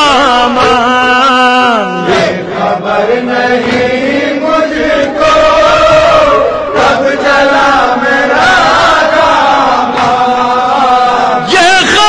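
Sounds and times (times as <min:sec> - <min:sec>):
person chanting a lament: 0:00.0 - 0:12.0.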